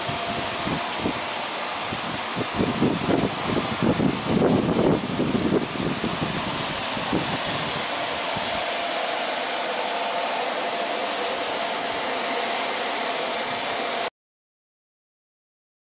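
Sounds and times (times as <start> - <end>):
fan running: 0.0 - 14.1.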